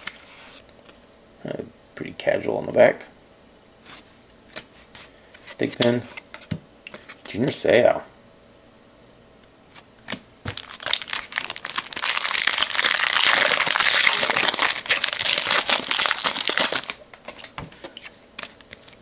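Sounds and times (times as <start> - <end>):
foil wrapper crinkling: 10.5 - 17.5, 18.4 - 19.0.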